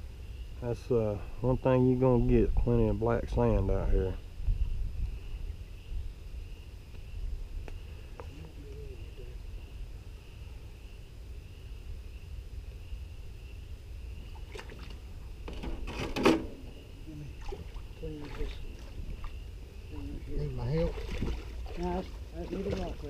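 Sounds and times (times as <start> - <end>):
high insect drone: 0.0 - 23.0
pump and water rumble: 13.9 - 23.0.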